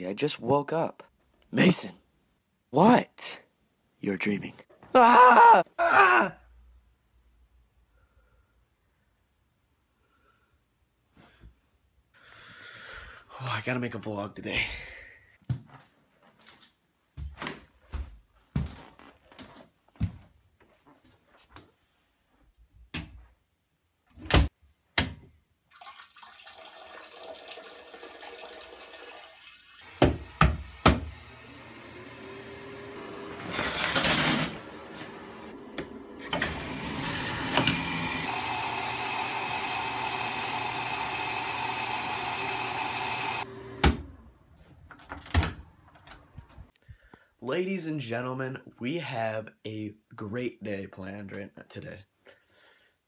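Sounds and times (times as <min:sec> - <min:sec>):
water running from shower: 0:25.7 - 0:29.9, 0:38.0 - 0:43.5
shower curtain pulled along rail: 0:32.2 - 0:38.7.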